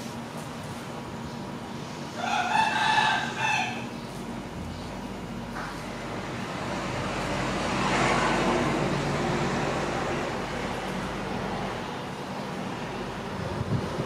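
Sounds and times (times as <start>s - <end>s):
motor vehicle passing: 5.2s - 14.0s.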